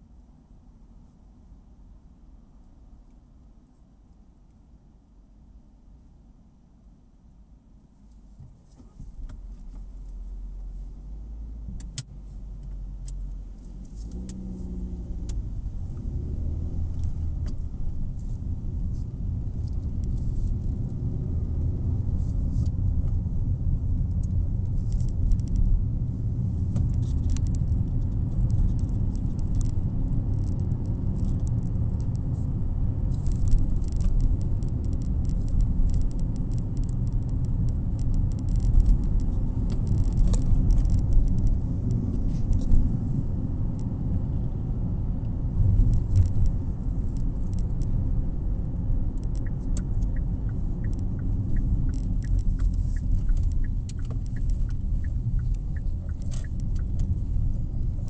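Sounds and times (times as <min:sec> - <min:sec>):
car engine and tyre rumble: 0:00.0 - 0:58.0
light clicking rattles: 0:11.8 - 0:44.3, 0:45.2 - 0:58.0.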